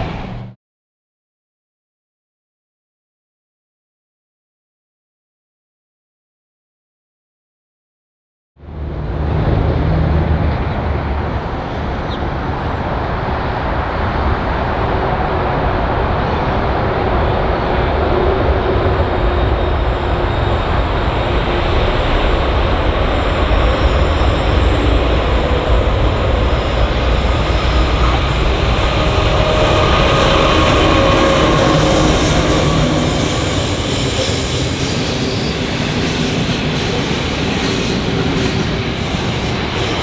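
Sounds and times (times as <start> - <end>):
diesel locomotive rumble: 0.0 - 0.6, 8.6 - 40.0.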